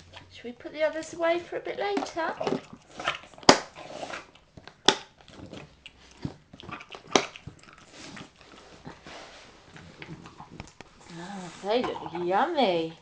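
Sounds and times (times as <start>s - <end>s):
dog crunching biscuits: 0.0s - 11.2s.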